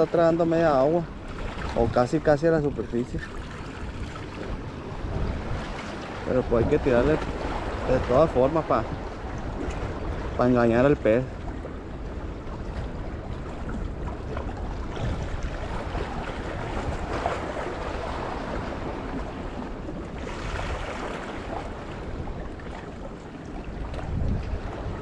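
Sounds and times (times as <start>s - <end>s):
wind buffeting microphone: 0.0s - 25.0s
waves washing against rocks: 13.6s - 25.0s.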